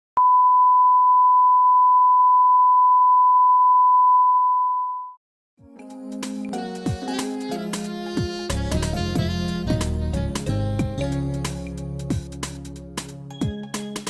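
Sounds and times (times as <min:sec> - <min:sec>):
music with several instruments: 0:05.6 - 0:14.0.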